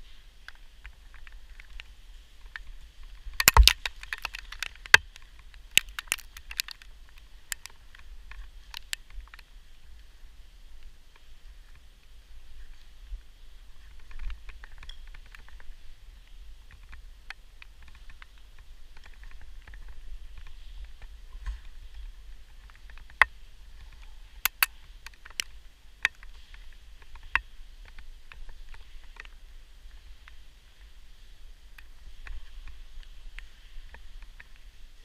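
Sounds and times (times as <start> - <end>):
rope gear clicking: 3.3 - 9.4, 24.4 - 26.3.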